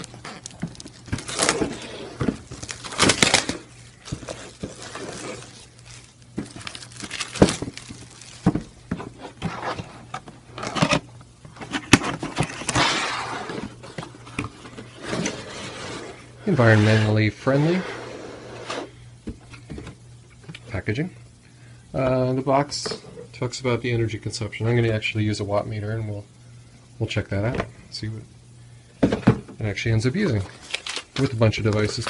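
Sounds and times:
shrink wrap crinkling and tearing: 0.0s - 8.6s, 30.2s - 32.0s
cardboard box being opened: 0.0s - 13.9s.

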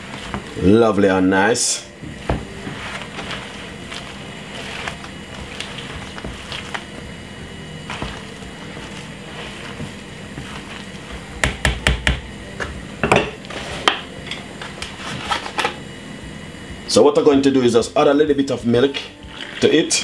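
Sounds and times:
wooden spoon scraping bowl: 0.0s - 0.6s, 2.0s - 11.4s.

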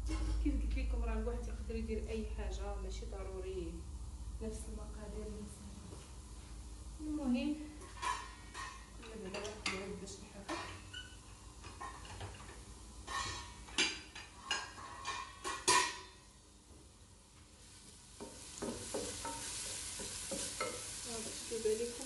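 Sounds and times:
kitchen utensils clacking: 10.5s - 16.2s
food sizzling in oil: 17.4s - 22.0s.

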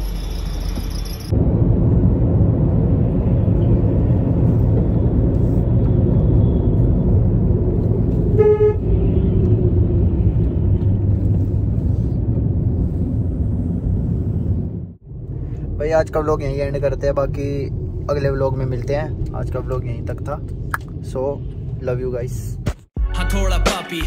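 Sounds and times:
car cabin road noise: 0.0s - 22.8s
car horn toot: 8.4s - 8.9s.

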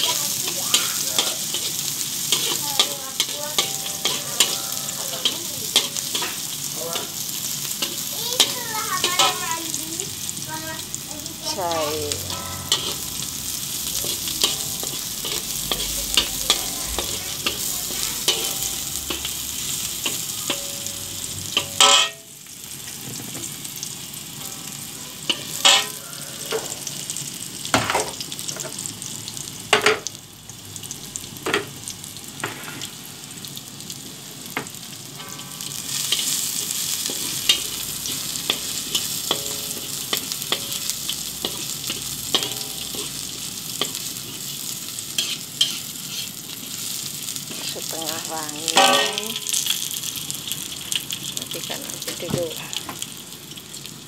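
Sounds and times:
spatula scraping a wok: 0.0s - 9.5s, 11.5s - 22.2s, 24.6s - 27.0s, 32.4s - 33.1s, 35.2s - 49.7s
food sizzling in oil: 0.0s - 54.0s.

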